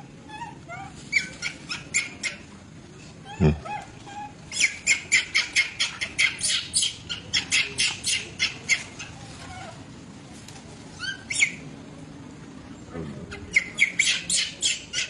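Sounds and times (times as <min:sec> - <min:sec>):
baby monkey shrill squeals: 0:00.3 - 0:02.4, 0:03.3 - 0:09.8, 0:11.0 - 0:11.6, 0:13.5 - 0:15.0
baby monkey rising cries: 0:03.2 - 0:09.8.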